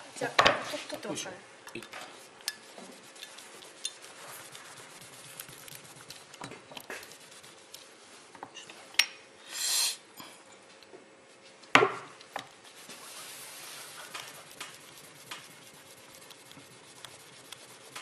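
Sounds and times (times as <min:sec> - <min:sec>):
tissue rubbing on metal: 0:02.1 - 0:08.2, 0:12.6 - 0:18.0
short hiss: 0:09.4 - 0:10.1.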